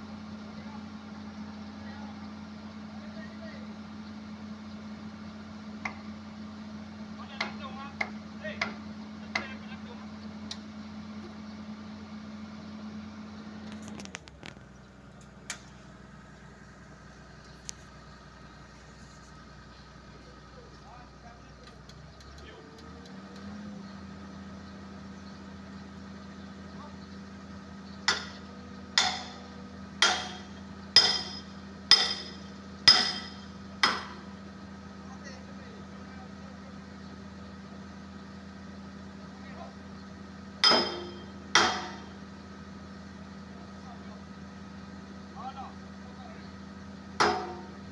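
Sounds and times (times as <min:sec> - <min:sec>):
excavator diesel engine running: 0:00.0 - 0:47.9
hammer striking steel: 0:28.1 - 0:28.4, 0:29.0 - 0:29.4, 0:30.0 - 0:34.2, 0:40.6 - 0:42.1, 0:47.2 - 0:47.8.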